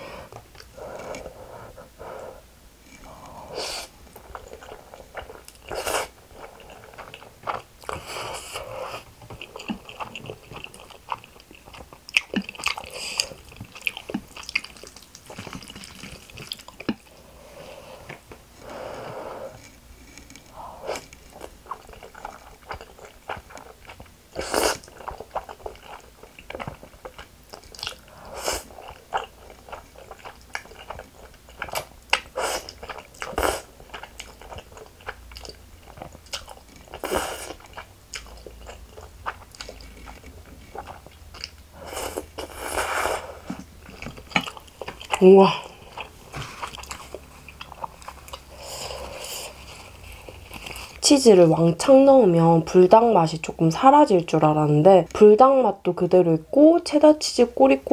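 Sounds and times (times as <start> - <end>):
wet chewing and lip smacking: 9.0 - 17.2, 19.6 - 42.5, 43.4 - 51.0
loud noodle slurps: 41.8 - 43.5.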